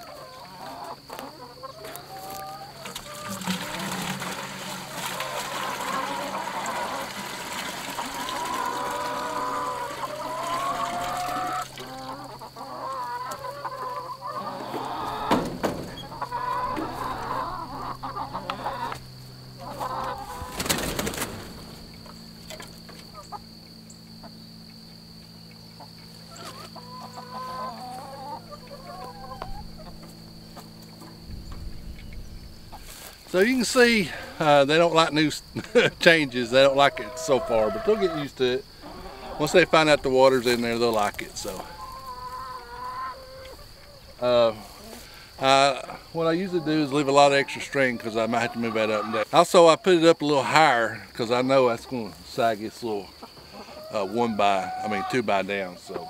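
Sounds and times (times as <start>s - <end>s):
chickens clucking: 0.0s - 56.0s
water pouring into bucket: 3.0s - 9.8s.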